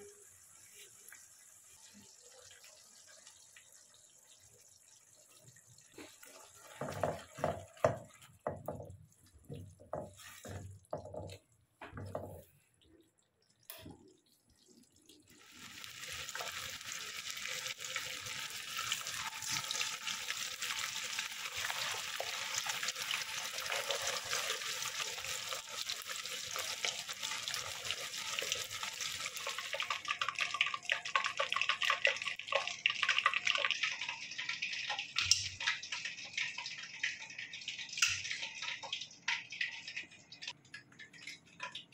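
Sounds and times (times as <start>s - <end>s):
chicken frying in oil: 0.0s - 41.9s
spatula scraping pan: 6.0s - 8.1s.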